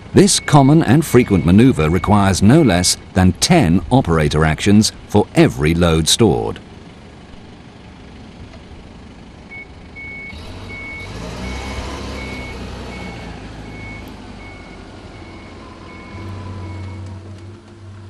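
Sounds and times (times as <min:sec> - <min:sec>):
back-up alarm beeping: 0:00.2 - 0:03.1, 0:09.5 - 0:17.2
forklift engine revving: 0:09.1 - 0:18.0.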